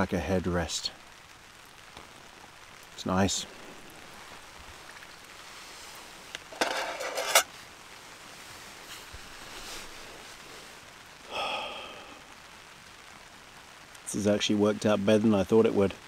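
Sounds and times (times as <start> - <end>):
rain pattering on a tarp: 0.0 - 16.0
nylon fabric rustling: 4.2 - 10.8.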